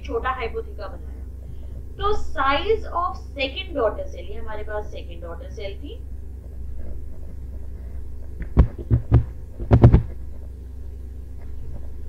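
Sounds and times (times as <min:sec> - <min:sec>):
steady low hum: 0:00.0 - 0:12.0
sharp taps: 0:08.3 - 0:10.2.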